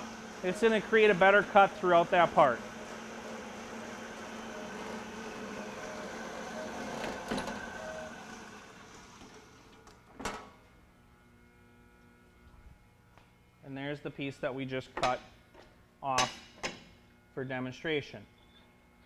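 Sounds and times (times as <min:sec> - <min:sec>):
band saw cutting metal bar: 0:00.0 - 0:09.5.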